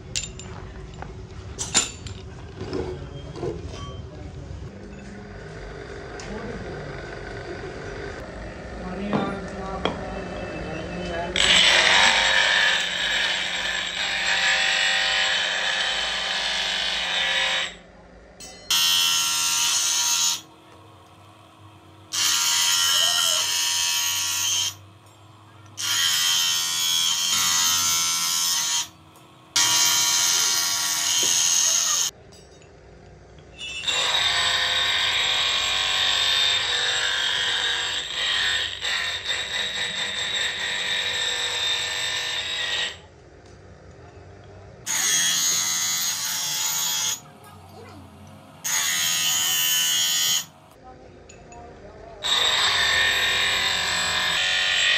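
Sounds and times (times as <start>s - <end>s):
bench grinder grinding steel: 11.3s - 32.2s, 33.6s - 43.1s, 44.8s - 50.8s, 52.2s - 54.9s.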